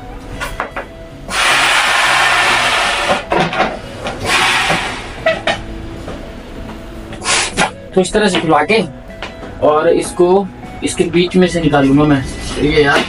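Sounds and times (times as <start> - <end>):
blowing up balloon by mouth: 1.3 - 3.3, 4.2 - 5.3, 7.2 - 7.7.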